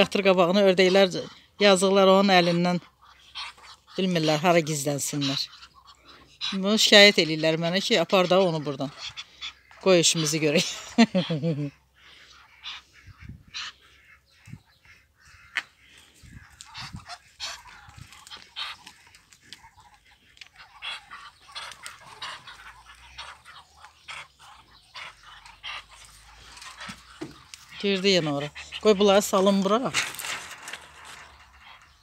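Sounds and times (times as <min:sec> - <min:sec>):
ducks making quiet calls: 0:00.0 - 0:32.0.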